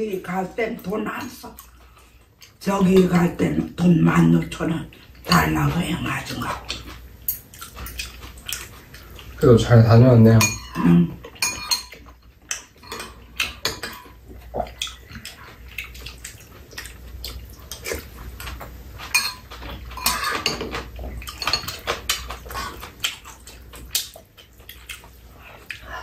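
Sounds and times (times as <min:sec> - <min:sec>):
utensils clinking on ceramic bowls: 0:06.7 - 0:08.7, 0:09.6 - 0:14.2, 0:18.4 - 0:22.8
mouth sounds of eating: 0:14.1 - 0:26.0.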